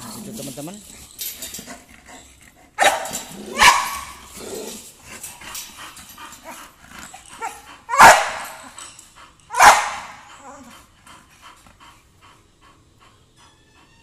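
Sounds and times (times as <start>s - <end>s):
dog barking: 2.8s - 4.1s, 7.9s - 8.6s, 9.5s - 10.2s.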